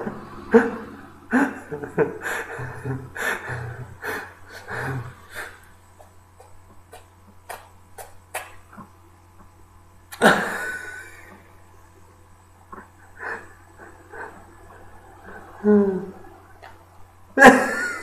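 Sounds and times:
man laughing under his breath: 0.0s - 5.6s, 10.2s - 11.4s, 12.7s - 16.3s, 17.4s - 18.0s.

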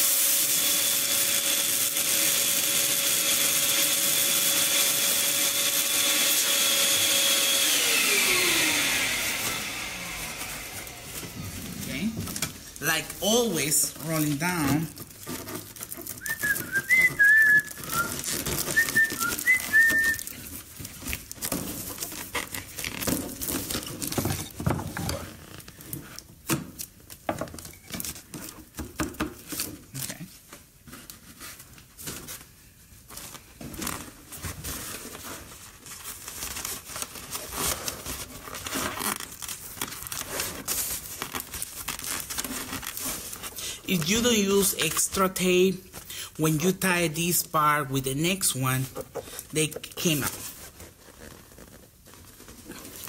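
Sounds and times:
foil balloon crinkling: 8.6s - 28.8s, 29.4s - 53.0s
rubbery balloon squeaks: 14.0s - 26.2s, 33.4s - 44.7s, 48.7s - 53.0s.

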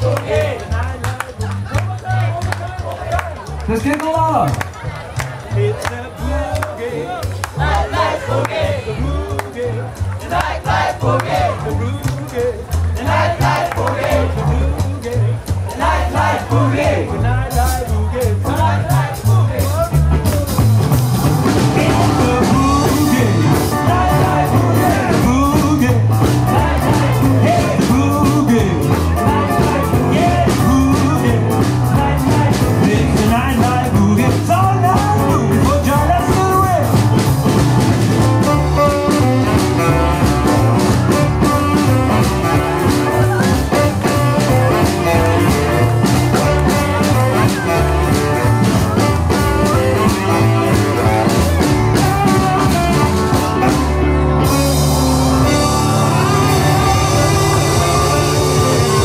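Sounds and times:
drum kit beat: 0.0s - 59.0s
upright bass: 0.0s - 59.0s
electric guitar: 20.1s - 59.0s.

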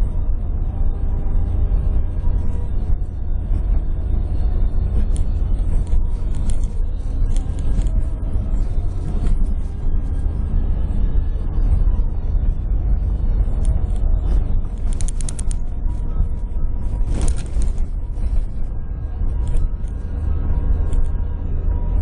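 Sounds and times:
vehicle engine and tyres rumbling: 0.0s - 22.0s.

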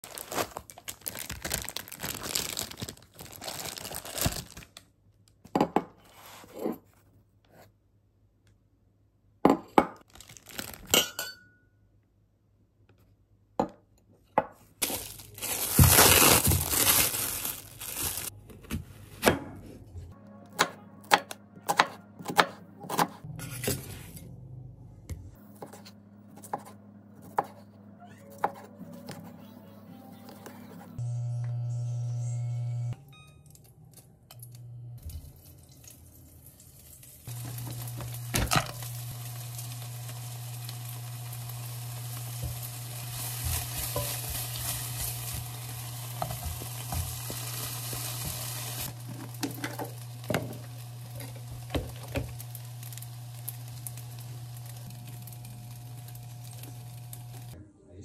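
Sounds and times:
plastic wrap crinkling and tearing: 0.0s - 4.9s, 10.0s - 11.0s, 14.8s - 18.4s, 36.8s - 57.6s
knife chopping on cutting board: 20.6s - 23.8s, 25.5s - 27.6s.

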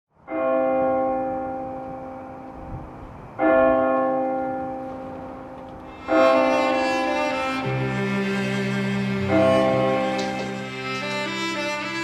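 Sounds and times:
church bell tolling: 0.2s - 2.6s, 3.4s - 8.3s, 9.2s - 10.9s.

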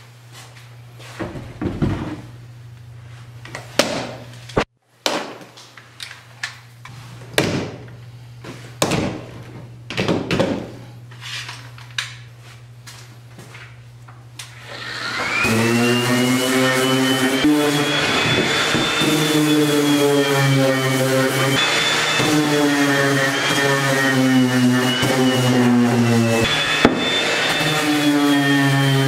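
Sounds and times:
electric sander whine: 14.6s - 29.0s.

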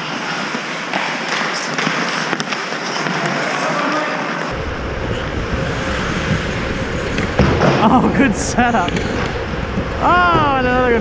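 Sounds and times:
deep rumble: 4.5s - 11.0s.

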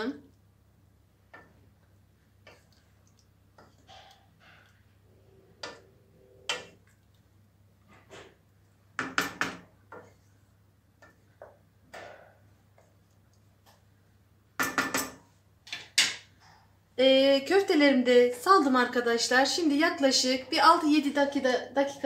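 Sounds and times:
wooden spoon scraping a metal pot: 2.4s - 2.9s, 3.5s - 6.9s, 9.0s - 11.6s.

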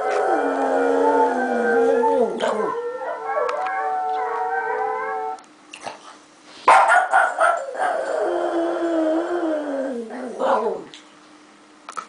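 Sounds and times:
dog howling: 0.0s - 5.4s, 7.4s - 10.9s.

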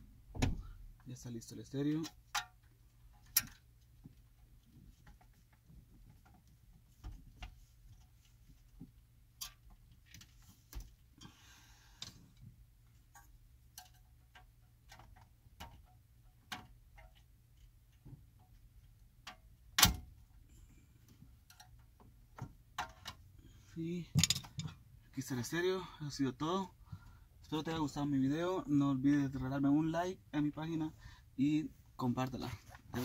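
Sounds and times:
clicks of handled metal casing: 1.9s - 3.7s, 13.1s - 20.1s, 21.4s - 23.2s, 24.2s - 24.8s.

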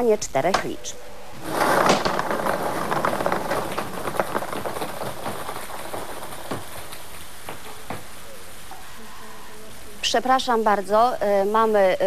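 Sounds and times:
lottery balls clattering: 1.4s - 8.7s.

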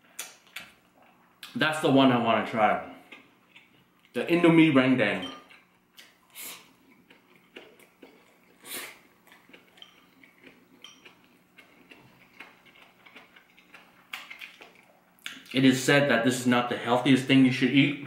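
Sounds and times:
slurping and chewing noodles: 6.3s - 15.0s.

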